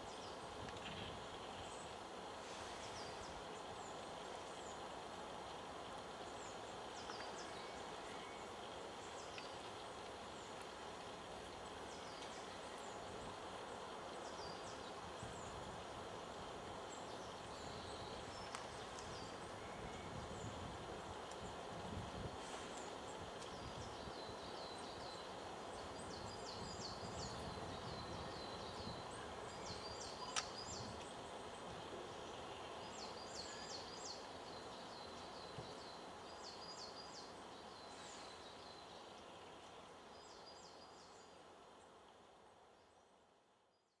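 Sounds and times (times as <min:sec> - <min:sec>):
songbird singing: 0:00.0 - 0:44.0
steady background hiss: 0:00.0 - 0:44.0.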